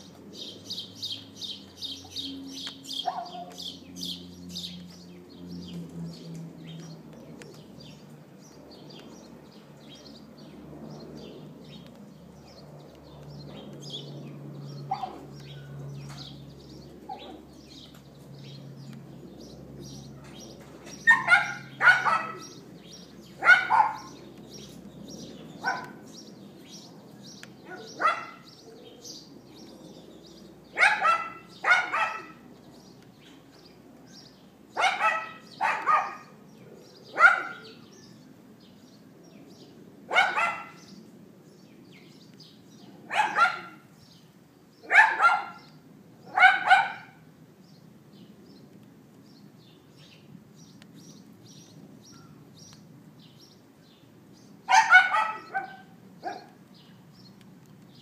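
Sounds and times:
small dog yapping: 0:03.0 - 0:03.6, 0:14.9 - 0:15.2, 0:21.0 - 0:22.6, 0:23.4 - 0:24.1, 0:25.6 - 0:26.0, 0:27.6 - 0:28.5, 0:30.8 - 0:32.4, 0:34.8 - 0:36.3, 0:37.1 - 0:37.8, 0:40.1 - 0:40.8, 0:43.1 - 0:43.8, 0:44.9 - 0:45.7, 0:46.3 - 0:47.2, 0:54.7 - 0:56.6.

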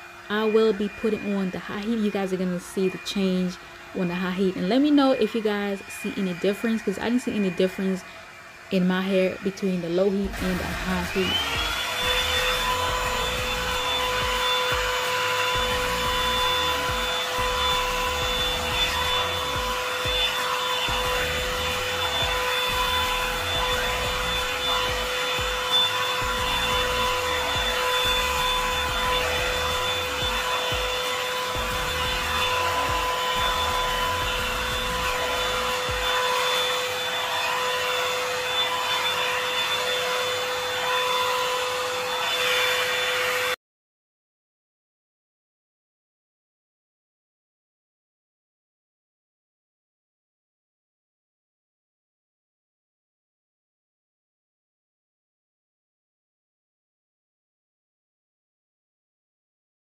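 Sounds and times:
blow dryer brush running: 0:00.0 - 0:43.6.

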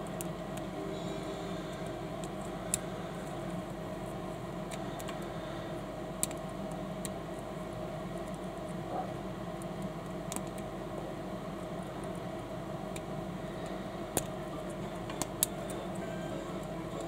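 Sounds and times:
steady hum: 0:00.0 - 0:17.0.

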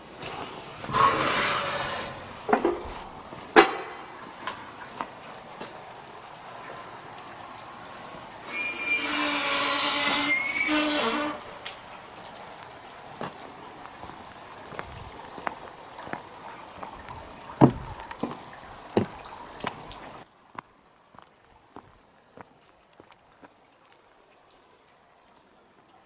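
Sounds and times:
rushing hiss: 0:00.0 - 0:03.2, 0:08.5 - 0:11.7
rain falling and dripping: 0:00.0 - 0:26.0.

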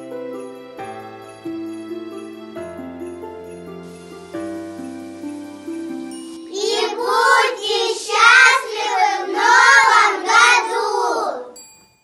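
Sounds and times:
children singing in unison: 0:06.5 - 0:11.6.

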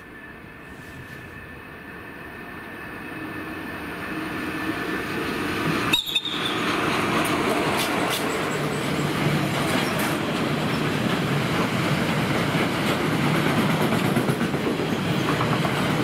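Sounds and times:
freight train wheels rumbling on rails: 0:00.0 - 0:16.0.

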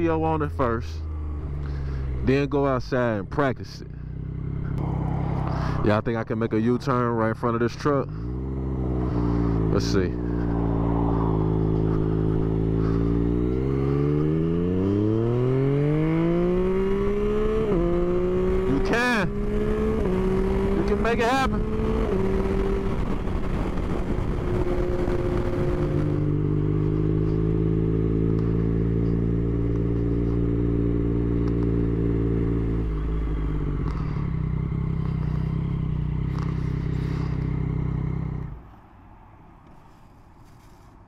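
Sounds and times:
motorcycle engine running: 0:00.0 - 0:38.6
wind noise: 0:19.3 - 0:27.6.

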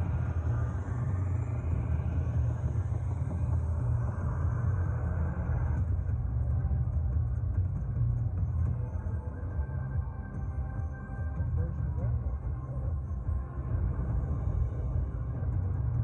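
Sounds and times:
low electronic rumble: 0:00.0 - 0:16.0.

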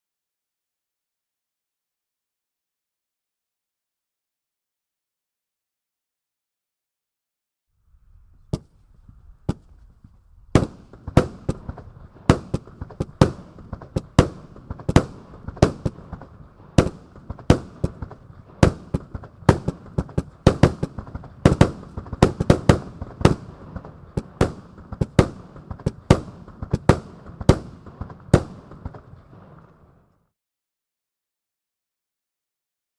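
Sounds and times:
fireworks hiss and crackle: 0:08.4 - 0:30.0
fireworks bangs: 0:08.4 - 0:30.1.

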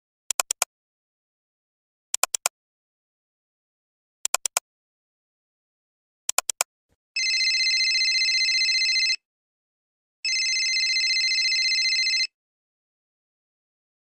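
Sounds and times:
sharp clicks: 0:00.3 - 0:00.7, 0:02.2 - 0:02.5, 0:04.2 - 0:04.6, 0:06.3 - 0:06.7
electronic telephone ringtone: 0:07.2 - 0:09.2, 0:10.2 - 0:12.4.

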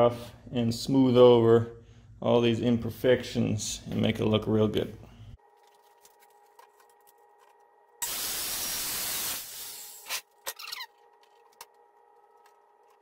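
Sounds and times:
compressed air hose blast: 0:08.0 - 0:10.2.

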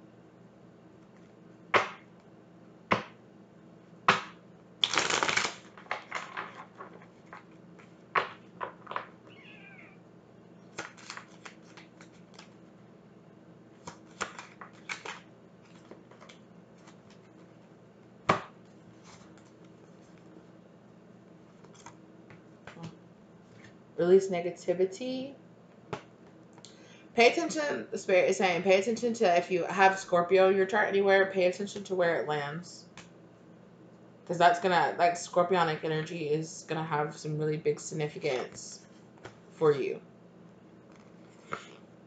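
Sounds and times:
cards snapping and clicking: 0:04.1 - 0:06.9, 0:10.7 - 0:12.6, 0:13.8 - 0:17.2
cards shuffling: 0:04.1 - 0:09.1, 0:10.7 - 0:12.6, 0:13.8 - 0:17.5, 0:21.5 - 0:22.9.

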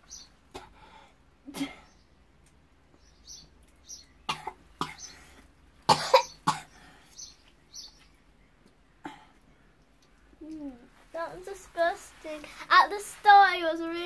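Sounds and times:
girl coughing: 0:01.5 - 0:01.9, 0:04.3 - 0:05.1, 0:05.9 - 0:06.7.

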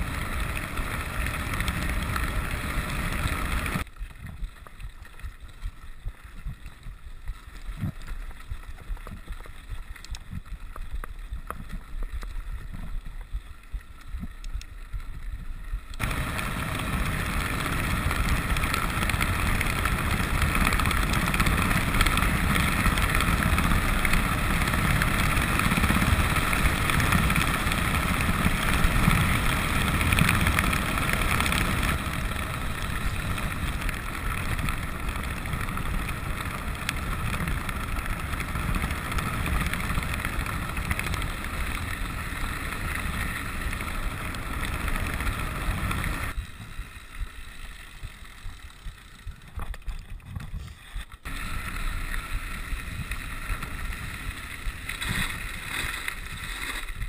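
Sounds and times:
bike tyres rattling over gravel: 0:00.0 - 0:57.0.

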